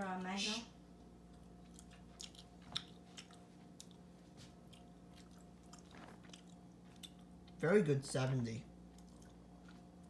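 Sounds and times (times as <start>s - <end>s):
low steady hum: 0.0s - 10.0s
faint chewing: 1.0s - 7.6s, 8.8s - 10.0s.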